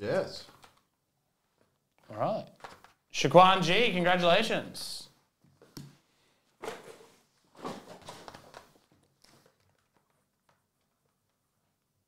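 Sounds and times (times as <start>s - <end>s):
small clicks and rustles: 0.4s - 3.1s, 7.9s - 12.0s.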